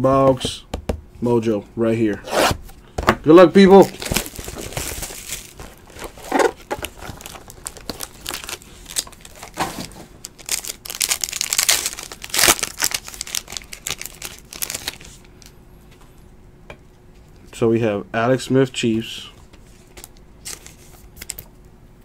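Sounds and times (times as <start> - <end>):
wrapper tearing and crinkling: 3.8 - 15.2, 20.0 - 21.5.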